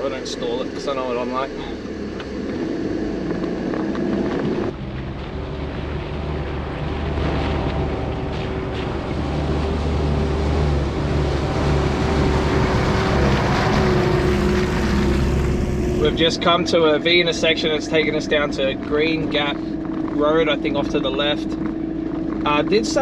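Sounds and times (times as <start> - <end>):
truck engine running: 0.0 - 23.0.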